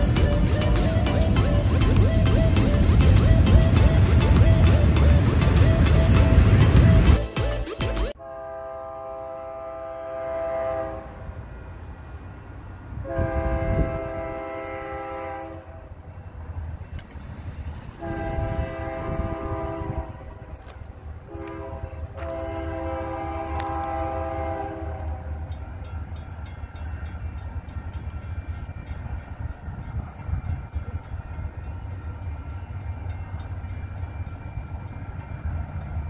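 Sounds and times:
locomotive air horn blasts: 0:00.0 - 0:11.2, 0:13.0 - 0:15.8, 0:18.0 - 0:20.6, 0:21.3 - 0:25.5.

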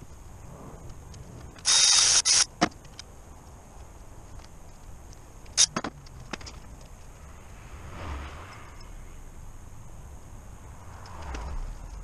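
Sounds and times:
power tool bursts: 0:01.6 - 0:02.6.

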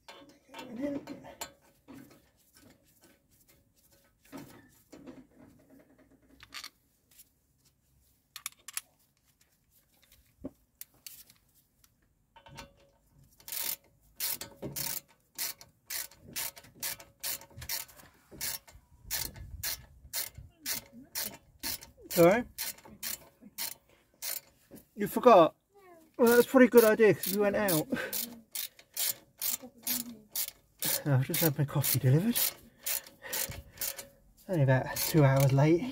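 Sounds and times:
hand ratchet clicking: 0:13.4 - 0:24.6, 0:26.3 - 0:34.2, 0:34.8 - 0:35.6.

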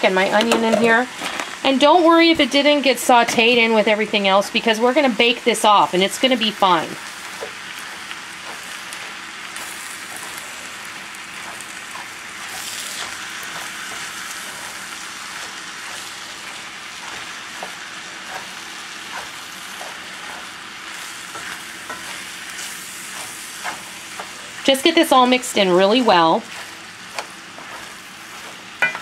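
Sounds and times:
food sizzling in a skillet: 0:00.0 - 0:29.0
spoon scraping a pan: 0:11.4 - 0:29.0.

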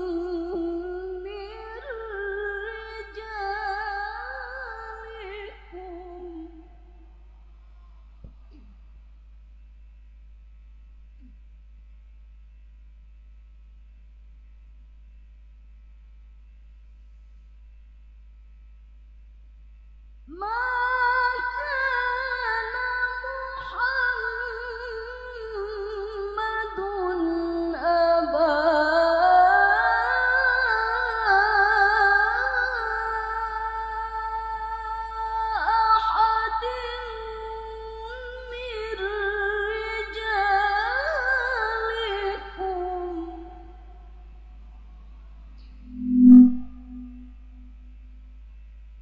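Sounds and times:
woman reciting melodically: 0:00.0 - 0:06.9, 0:20.3 - 0:44.0
faint low hum: 0:00.0 - 0:49.0.

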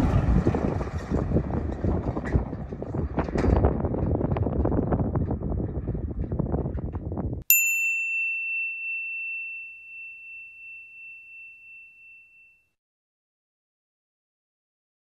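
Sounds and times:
wind buffeting microphone: 0:00.0 - 0:07.5
bright ringing ding: 0:07.5 - 0:12.8.

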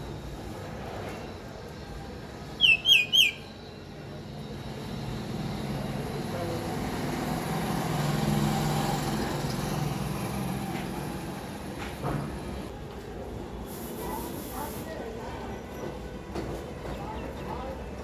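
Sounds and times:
myna sharp calls: 0:02.6 - 0:03.5.

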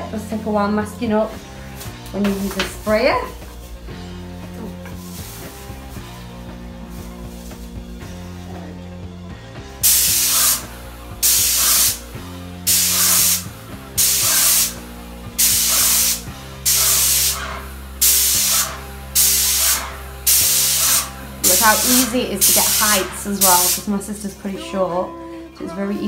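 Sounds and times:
background music: 0:00.0 - 0:26.0
paint sprayer hissing in bursts: 0:09.8 - 0:24.0.

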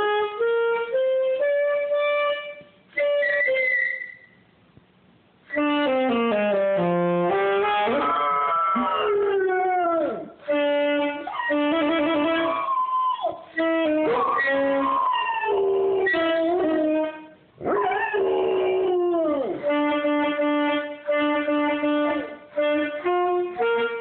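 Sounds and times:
saxophone playing: 0:00.0 - 0:04.4, 0:05.4 - 0:24.0
dog howling: 0:07.9 - 0:10.4, 0:11.2 - 0:19.6.

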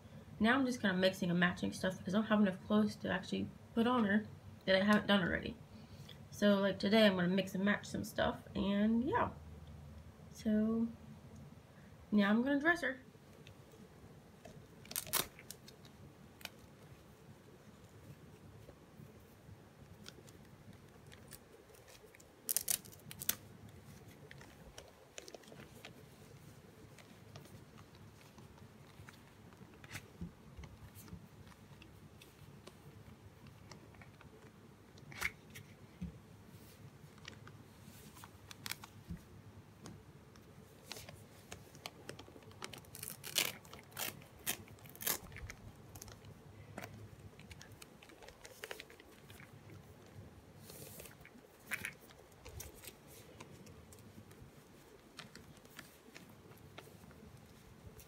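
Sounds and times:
clothes crackling and rasping: 0:13.3 - 0:39.4, 0:40.4 - 0:58.0.

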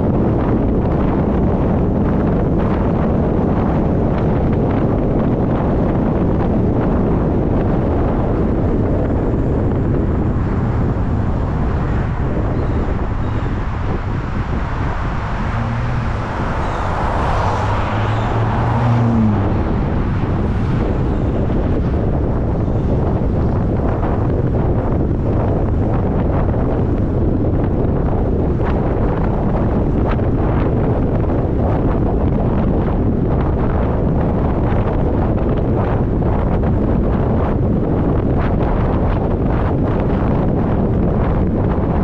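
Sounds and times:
tyres rumbling on road: 0:00.0 - 0:42.0
wind buffeting microphone: 0:00.0 - 0:42.0
low hum rising in pitch: 0:12.3 - 0:23.6.

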